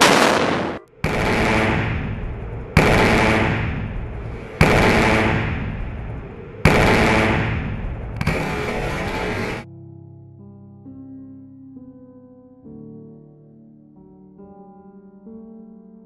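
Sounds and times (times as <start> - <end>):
railgun blasts: 0.0 - 9.6.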